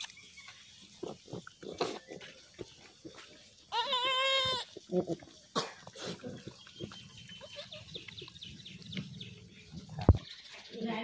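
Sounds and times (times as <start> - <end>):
goat snorting: 1.0 - 2.5, 4.9 - 7.0
goat grunt: 4.5 - 6.6
soft snuffling: 5.6 - 6.6.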